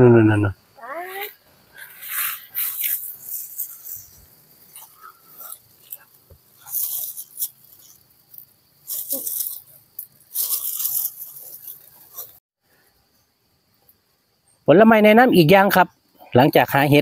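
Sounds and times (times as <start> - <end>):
dry leaves rustling and crackling: 2.0 - 12.4.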